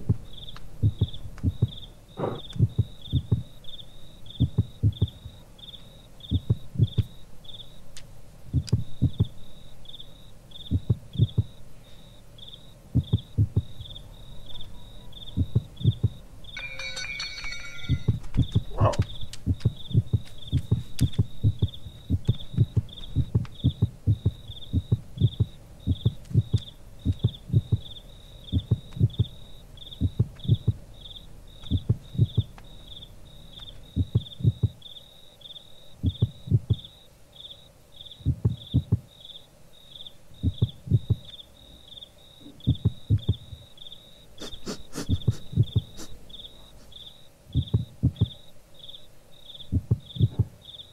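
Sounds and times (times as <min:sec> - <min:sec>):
heartbeat: 0:00.0 - 0:03.6, 0:04.4 - 0:05.4, 0:06.2 - 0:07.2, 0:08.5 - 0:09.5, 0:10.6 - 0:11.6, 0:12.9 - 0:13.9, 0:15.3 - 0:27.9, 0:28.5 - 0:30.9, 0:31.6 - 0:32.6, 0:33.9 - 0:34.8, 0:36.0 - 0:36.9, 0:38.2 - 0:39.1, 0:40.4 - 0:41.3, 0:42.6 - 0:43.7, 0:44.4 - 0:46.1, 0:47.5 - 0:48.4, 0:49.7 - 0:50.6
cricket chirping: 0:00.0 - 0:50.9.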